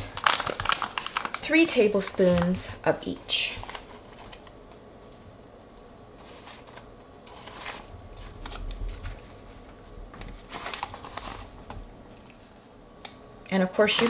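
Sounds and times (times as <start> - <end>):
paper pouch crinkling: 0.0 - 4.6, 6.2 - 9.6, 10.3 - 11.6.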